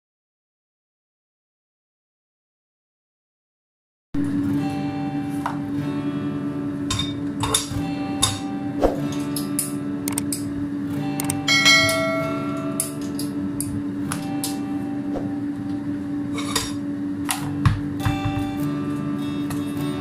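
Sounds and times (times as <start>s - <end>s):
steady hum: 4.2s - 20.0s
metal pot and lid clanking: 6.9s - 8.5s, 16.3s - 16.8s.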